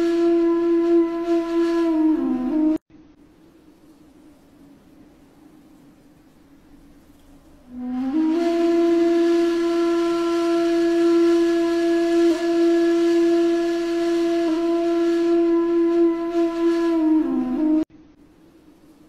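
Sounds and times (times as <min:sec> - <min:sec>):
wind instrument long note: 0:00.0 - 0:02.8, 0:07.7 - 0:17.9.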